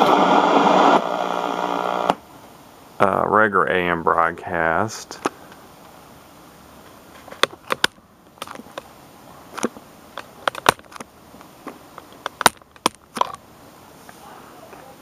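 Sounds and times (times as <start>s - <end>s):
radio static hiss: 0.0s - 6.8s
static crackles and pops: 0.0s - 13.5s.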